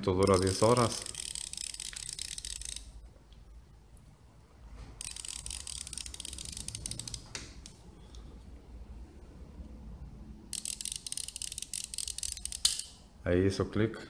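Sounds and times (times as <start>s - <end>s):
timer gears ratcheting clicks: 0.2s - 2.9s, 5.0s - 7.8s, 10.5s - 13.0s.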